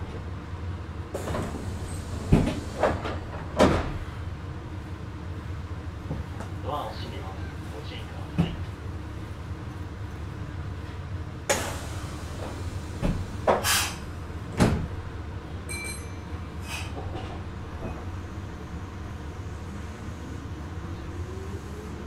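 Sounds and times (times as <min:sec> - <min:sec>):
train humming: 0:00.0 - 0:22.0
sliding doors thudding: 0:01.2 - 0:04.1, 0:14.5 - 0:15.0.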